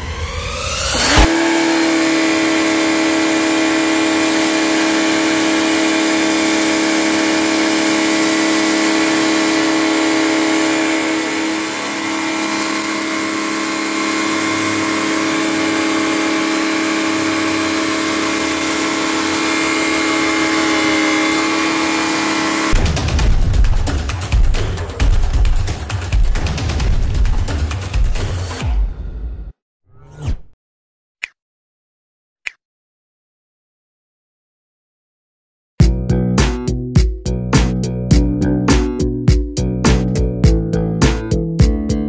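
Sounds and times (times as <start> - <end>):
pressure washer motor whining: 0.0 - 22.9.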